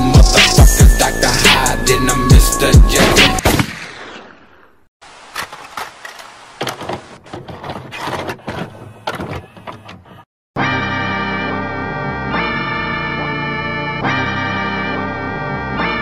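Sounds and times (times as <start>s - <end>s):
keyboard music: 0.0s - 3.4s, 10.6s - 16.0s.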